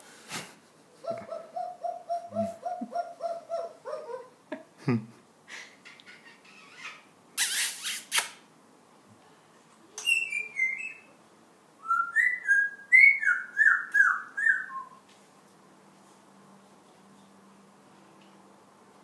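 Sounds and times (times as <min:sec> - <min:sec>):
parrot whistling: 0:10.0 - 0:11.1, 0:11.8 - 0:15.0.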